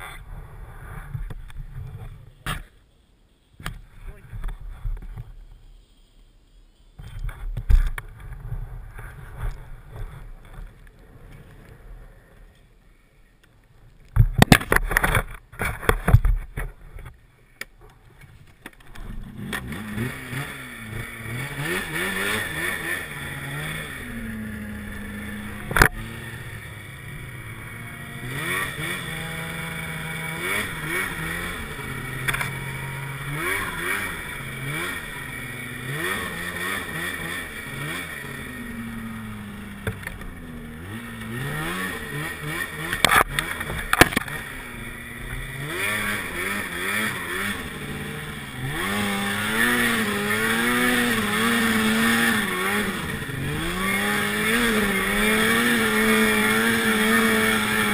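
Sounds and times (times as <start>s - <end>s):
snowmobile engine revving: 18.8s - 57.9s.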